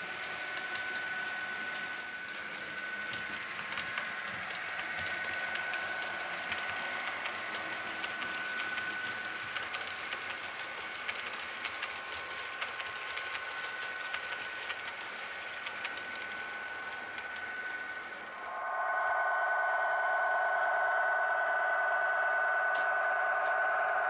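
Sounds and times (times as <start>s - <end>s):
wheels clicking over track: 0.0s - 18.4s
model train motor whine: 0.0s - 19.0s
steady hum: 0.0s - 24.0s.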